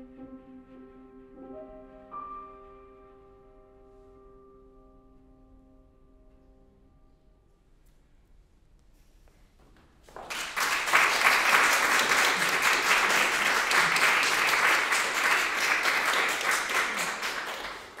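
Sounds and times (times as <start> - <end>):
audience applauding: 10.1 - 18.0.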